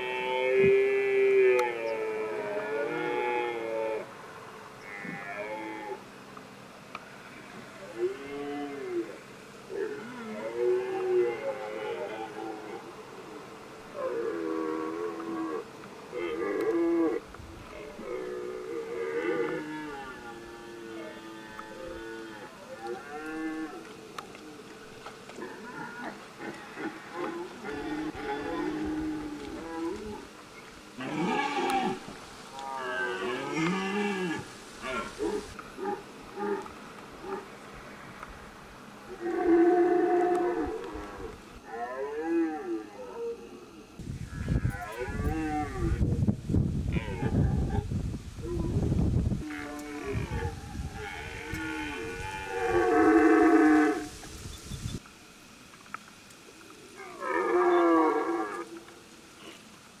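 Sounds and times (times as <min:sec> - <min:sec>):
deer stag roaring: 0:07.8 - 0:24.6, 0:25.4 - 0:30.3, 0:31.0 - 0:37.5, 0:39.1 - 0:46.0, 0:49.4 - 0:54.1, 0:56.9 - 0:58.8.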